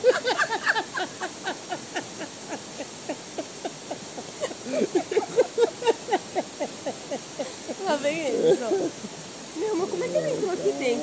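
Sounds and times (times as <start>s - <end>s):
people laughing hard: 0.0s - 7.8s.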